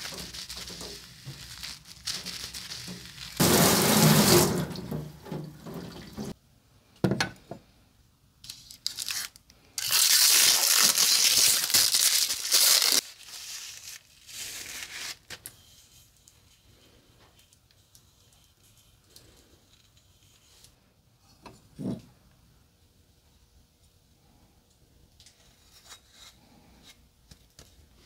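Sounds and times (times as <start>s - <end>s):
plastic wrap crinkling and tearing: 0.0s - 4.8s, 8.5s - 15.5s
hose spraying water on knife: 2.2s - 4.9s.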